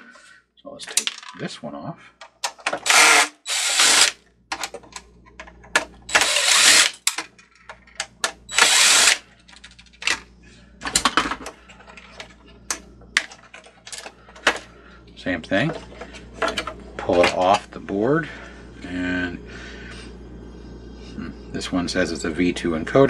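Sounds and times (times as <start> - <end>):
cordless driver running: 2.7 - 4.2, 6.1 - 7.2, 8.5 - 9.2
plastic parts clicking: 3.9 - 10.2.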